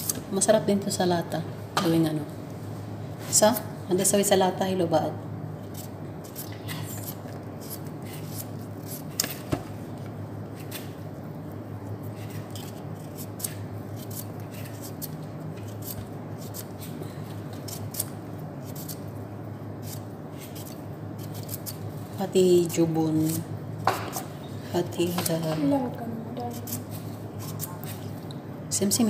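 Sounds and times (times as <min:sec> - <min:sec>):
steady low hum: 0:00.0 - 0:29.0
knife scraping vegetable skin: 0:05.7 - 0:09.4, 0:12.1 - 0:19.1, 0:19.8 - 0:21.9, 0:26.5 - 0:28.1.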